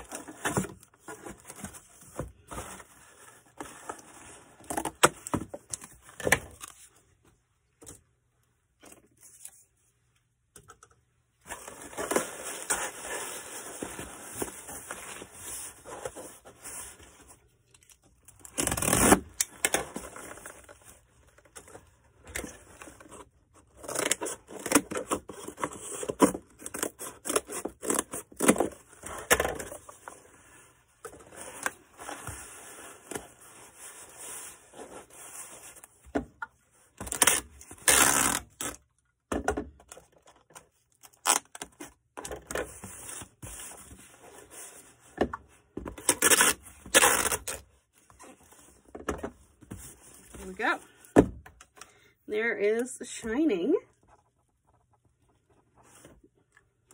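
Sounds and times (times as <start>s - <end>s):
cardboard scraping and rustling: 0.0s - 6.9s.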